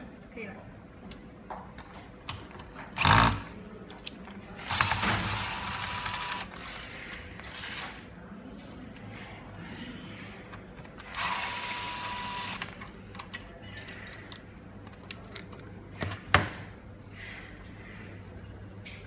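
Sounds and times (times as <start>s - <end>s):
electric screwdriver whining: 4.7s - 6.6s, 11.1s - 12.7s.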